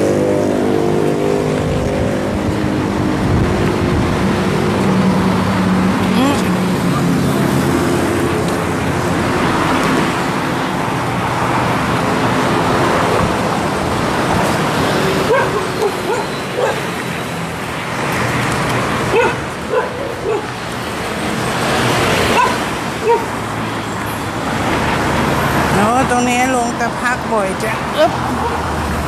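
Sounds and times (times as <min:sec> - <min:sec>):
traffic noise: 0:00.0 - 0:29.0
dog barking and yipping: 0:15.3 - 0:17.0, 0:19.1 - 0:20.6, 0:22.3 - 0:23.3.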